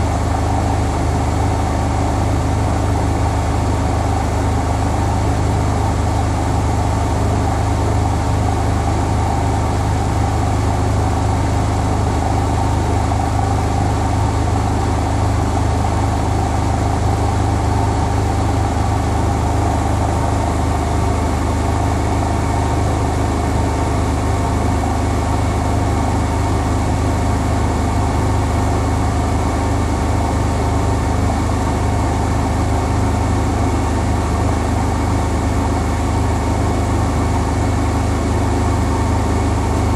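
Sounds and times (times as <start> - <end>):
washing machine spinning: 0.0 - 39.9.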